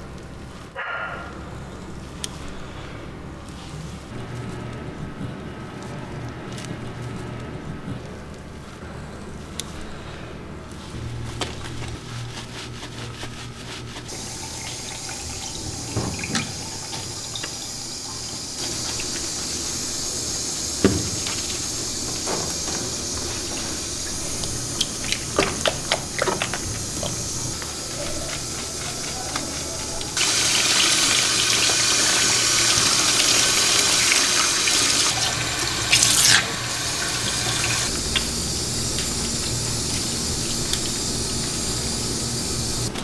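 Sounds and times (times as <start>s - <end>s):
shower sprayer water running: 11.6s - 43.0s.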